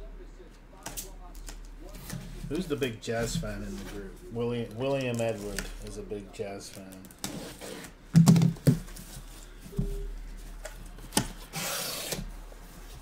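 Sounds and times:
knocks on cardboard boxes: 8.2 - 8.9.

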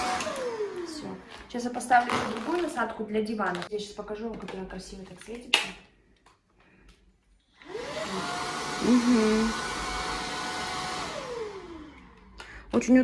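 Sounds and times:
vacuum cleaner motor whine: 0.0 - 2.6, 7.5 - 12.8.

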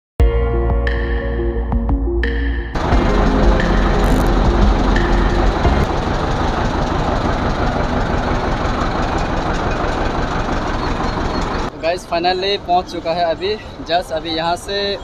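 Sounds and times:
toy train engine rumbling: 2.8 - 11.7.

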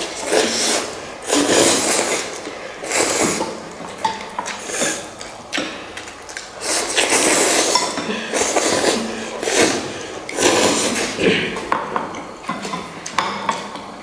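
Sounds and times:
loud noodle slurping: 0.0 - 3.8, 4.4 - 11.7
utensils clinking against bowls: 6.8 - 13.9.

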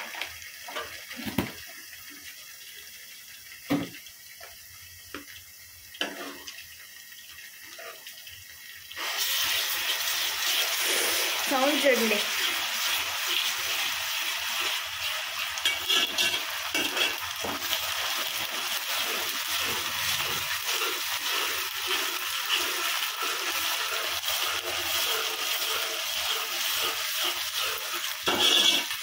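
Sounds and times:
food sizzling in hot oil: 0.0 - 29.0
spoon stirring in pan: 6.0 - 6.6, 12.1 - 29.0.

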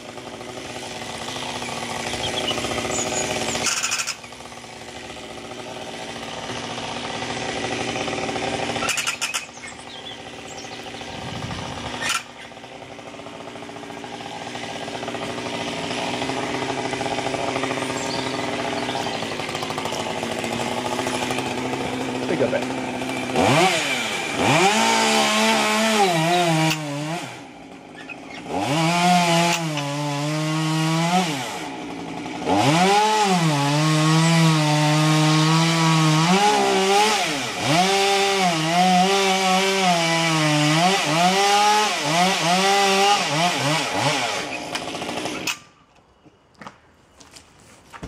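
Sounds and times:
chainsaw cutting wood: 0.0 - 45.8.

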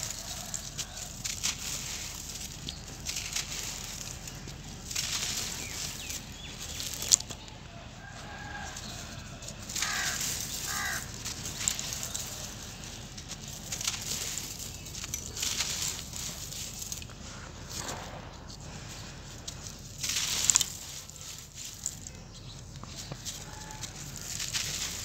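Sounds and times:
grit trickling: 0.0 - 17.9
dry lumps crunching between fingers: 0.0 - 25.0.

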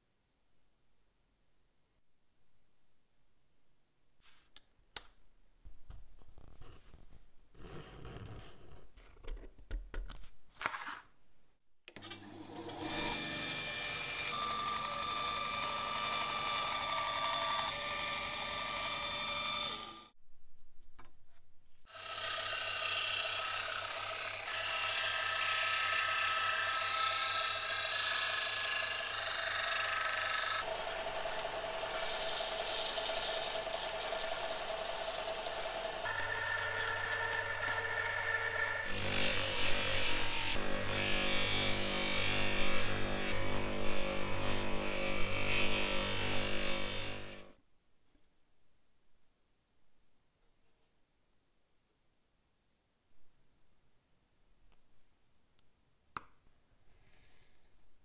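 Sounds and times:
scraping and handling parts: 10.1 - 11.2
small power tool whining: 12.0 - 20.2, 21.9 - 47.6.

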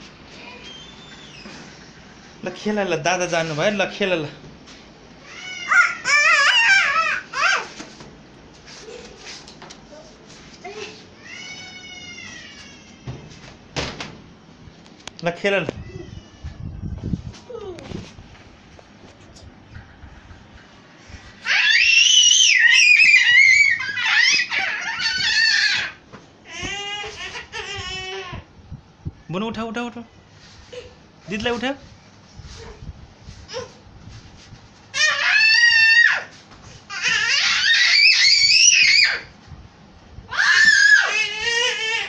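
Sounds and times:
toddler screaming: 5.2 - 7.7, 10.7 - 13.1, 21.4 - 28.4, 34.9 - 39.3, 40.3 - 42.0
children shrieking with laughter: 5.2 - 7.8, 21.4 - 28.4, 34.9 - 39.3, 40.3 - 42.0.

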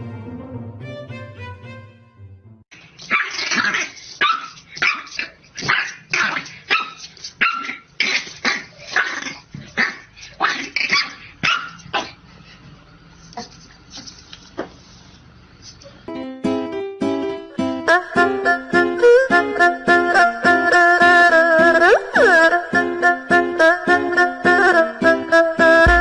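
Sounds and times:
puppy barking: 3.1 - 12.2.

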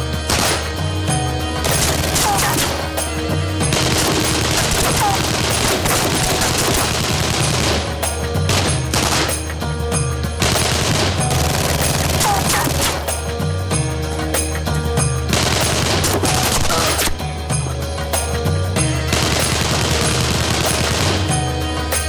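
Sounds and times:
submachine gun fire: 0.3 - 0.8, 1.6 - 3.0, 3.7 - 9.5, 10.4 - 13.1, 15.3 - 17.2, 19.1 - 21.4.

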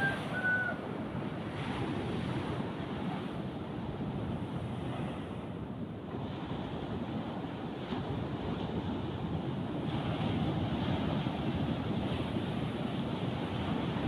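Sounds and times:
surf breaking on shore: 0.0 - 3.6
wind blowing on microphone: 0.0 - 14.0.

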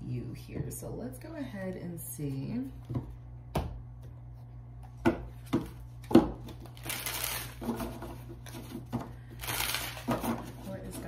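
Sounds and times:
cards shuffling: 6.4 - 10.6.

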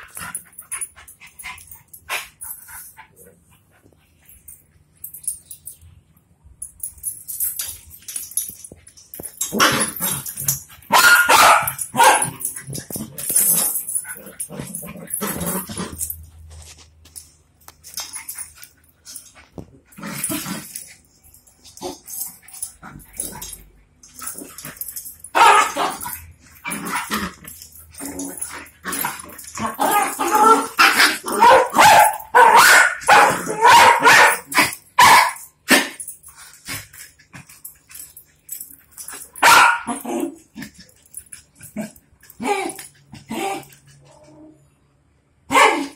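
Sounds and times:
dogs barking and yipping: 7.6 - 16.3, 20.2 - 44.2.

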